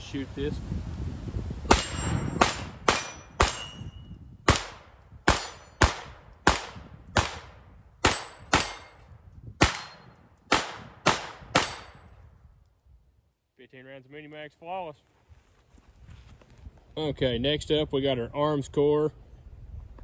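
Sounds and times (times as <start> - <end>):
pistol shots: 1.7 - 3.8, 4.4 - 9.0, 9.6 - 12.0.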